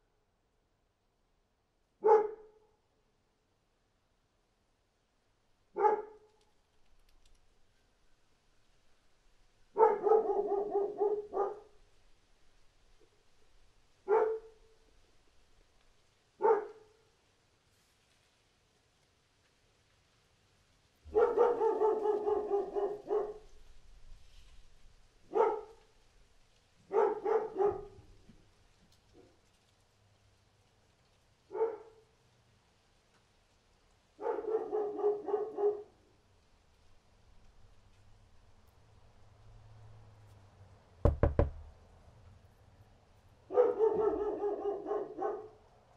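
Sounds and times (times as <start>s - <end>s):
dog barking: 2.0s - 2.6s, 5.7s - 6.3s, 9.7s - 11.8s, 14.0s - 14.8s, 16.4s - 17.0s, 21.1s - 23.6s, 25.3s - 25.9s, 26.8s - 28.1s, 31.5s - 32.1s, 34.2s - 36.0s, 43.5s - 45.6s.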